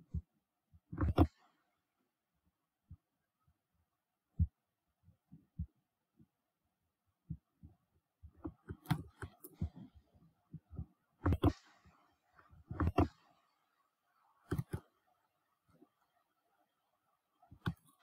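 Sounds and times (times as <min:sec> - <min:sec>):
computer mouse clicks: 0:00.9 - 0:01.4, 0:08.4 - 0:09.9, 0:10.5 - 0:11.9, 0:12.7 - 0:13.4, 0:14.4 - 0:15.0, 0:17.5 - 0:18.0.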